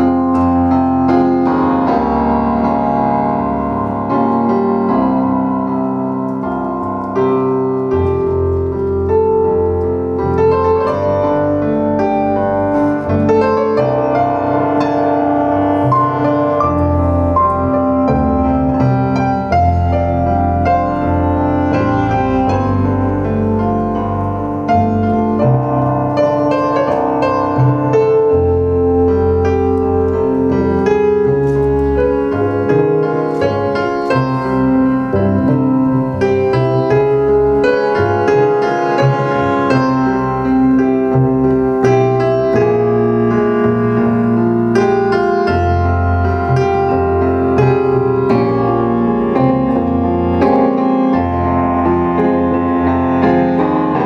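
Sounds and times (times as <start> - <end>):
clarinet melody: 0.0 - 54.0
plucked double bass: 0.0 - 54.0.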